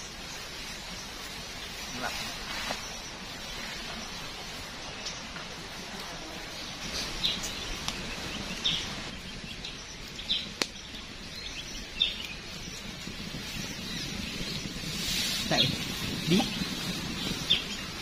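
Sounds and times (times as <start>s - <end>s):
forest background hiss: 0.0s - 18.0s
sharp crack: 10.6s - 10.8s.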